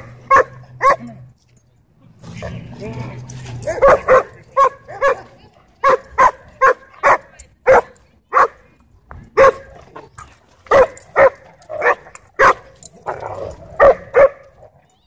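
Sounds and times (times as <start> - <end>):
dog barking: 0.0 - 1.1, 3.6 - 8.6, 9.4 - 9.7, 10.7 - 12.8, 13.8 - 14.6.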